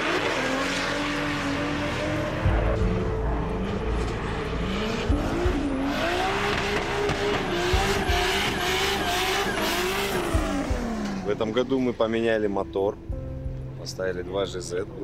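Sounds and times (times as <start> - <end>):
car engine revving hard: 0.0 - 11.3
tyre squeal: 7.9 - 10.7.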